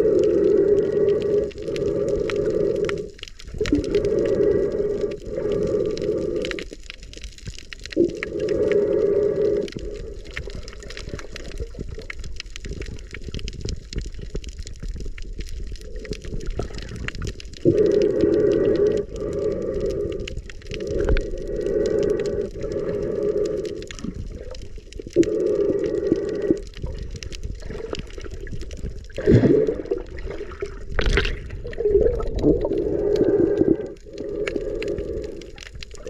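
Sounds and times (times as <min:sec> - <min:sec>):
breathing through a snorkel underwater: 0:00.0 - 0:07.1, 0:07.9 - 0:12.1, 0:15.6 - 0:36.0
crackling clicks underwater: 0:00.0 - 0:36.0.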